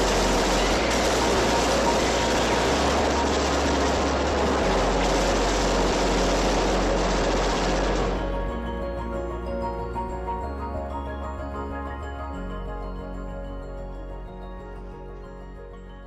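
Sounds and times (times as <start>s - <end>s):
rapid gunfire: 0.0s - 8.2s.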